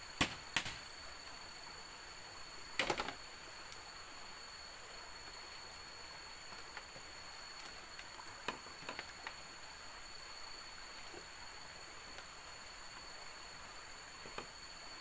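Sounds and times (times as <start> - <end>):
faint steady hiss: 0.0 - 15.0
bamboo slats clicking: 0.2 - 0.8, 2.8 - 3.2.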